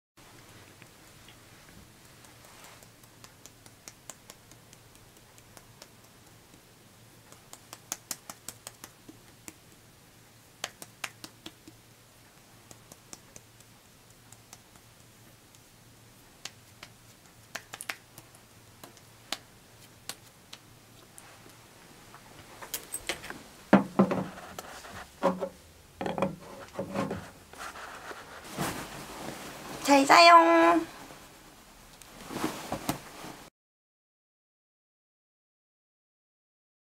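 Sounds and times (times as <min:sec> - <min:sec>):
fingertips tapping on skin: 0:01.2 - 0:06.6, 0:07.2 - 0:09.9, 0:10.6 - 0:11.8, 0:12.6 - 0:21.6
plastic jar handled: 0:23.0 - 0:28.6.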